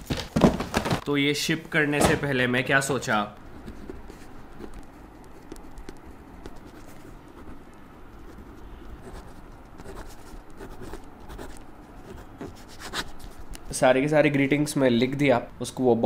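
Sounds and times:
pen scratching on paper: 0:03.6 - 0:13.4.

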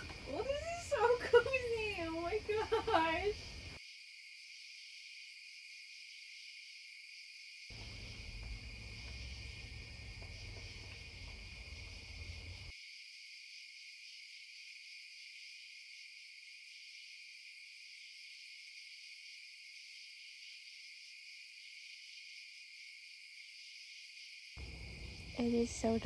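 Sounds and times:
crickets chirring: 0:00.0 - 0:26.0.

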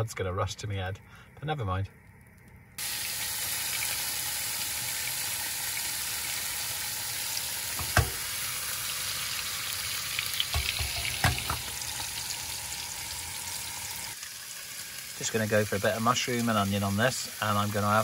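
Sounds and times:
steaks sizzling in pan: 0:02.8 - 0:18.0
sharp knocks: 0:07.8 - 0:08.2.

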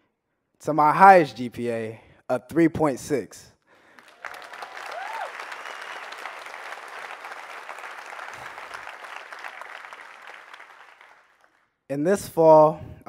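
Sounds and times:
audience applauding: 0:03.8 - 0:11.6.

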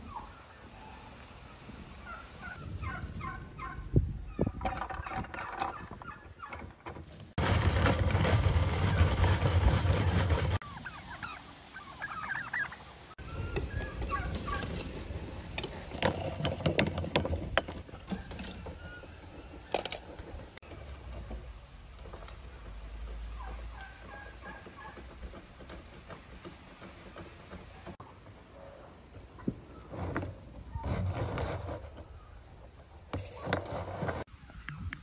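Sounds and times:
turkeys gobbling: 0:00.0 - 0:06.8, 0:08.8 - 0:15.8, 0:22.5 - 0:29.9.

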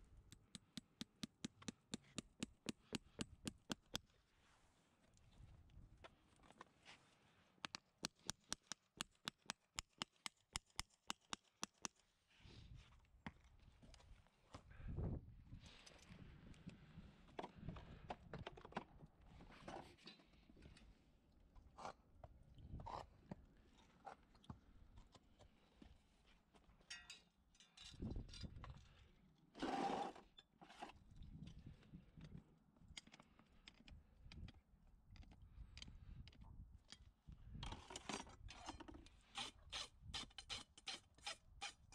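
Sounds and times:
hammer tapping horseshoe nail: 0:00.3 - 0:04.0, 0:07.6 - 0:12.0.

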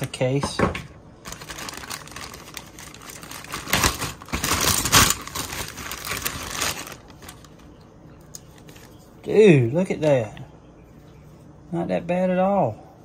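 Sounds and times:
plastic bag crinkling: 0:01.2 - 0:07.8.

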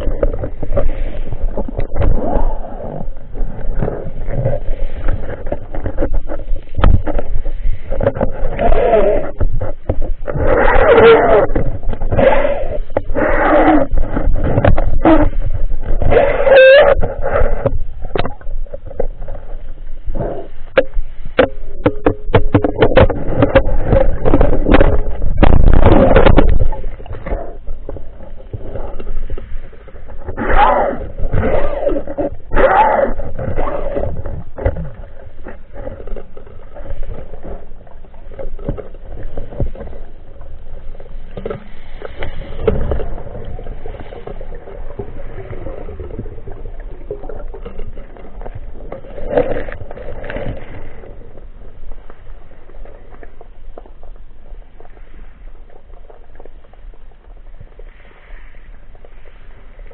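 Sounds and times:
underwater water rushing: 0:00.0 - 0:59.9.

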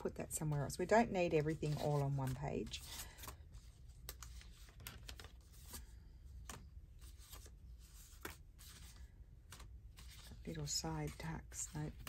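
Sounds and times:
paper rustling and clicking: 0:04.0 - 0:12.0.

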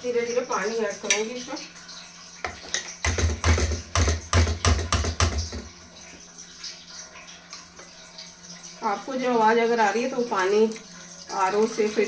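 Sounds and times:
water filling a drum: 0:00.0 - 0:12.0
wooden spoon beating batter in pot: 0:02.5 - 0:05.7.

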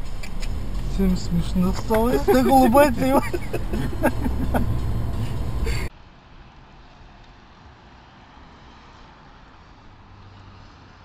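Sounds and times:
car moving heard from inside: 0:00.0 - 0:05.9.

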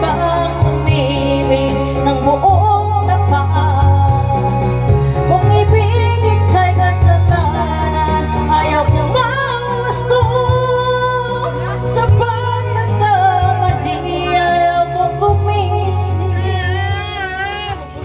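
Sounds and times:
woman singing with vibrato: 0:05.3 - 0:17.2.

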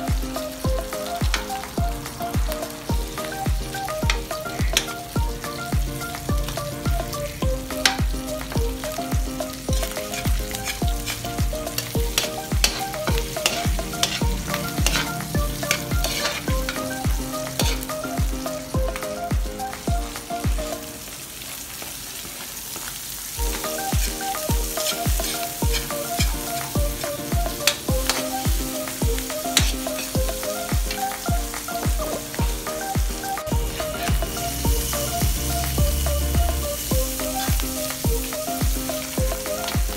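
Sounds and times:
background music with steady beat: 0:00.0 - 0:21.0, 0:23.4 - 0:39.9
aromatics sizzling in a wok: 0:00.0 - 0:39.9
metal spatula scraping a pan: 0:09.8 - 0:16.8, 0:23.5 - 0:26.3.

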